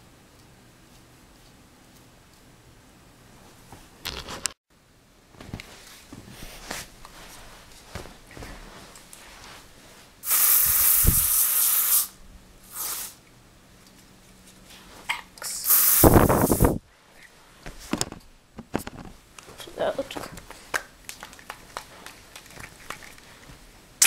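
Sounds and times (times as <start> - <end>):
hissing bursts: 10.2 - 13.2, 15.5 - 16.8.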